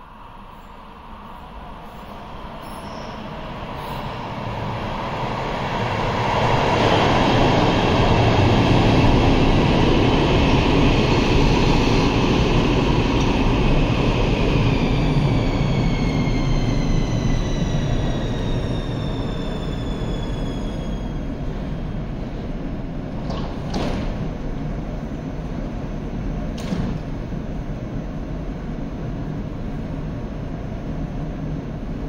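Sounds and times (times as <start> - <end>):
train wheels rumbling on rail: 0.0 - 32.0.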